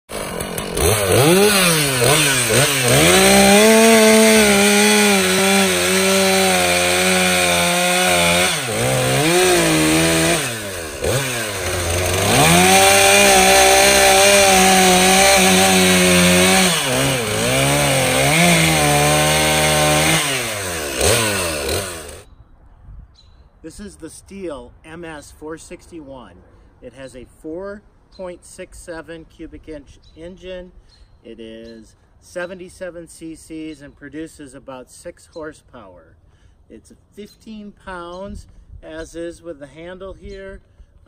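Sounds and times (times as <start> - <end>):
chainsaw cutting logs: 0.1 - 22.3.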